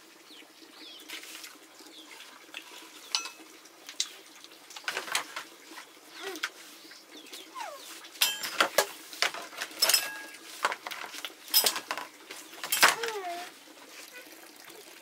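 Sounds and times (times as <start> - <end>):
metal dishes and pots clanking: 3.0 - 3.4, 8.2 - 13.2.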